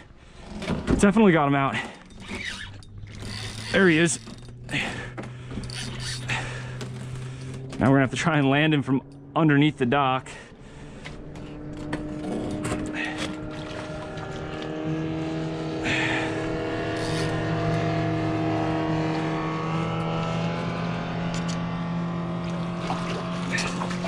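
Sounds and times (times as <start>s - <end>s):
motorboat engine humming: 0.0s - 24.0s
fish splashing at water surface: 22.4s - 24.0s.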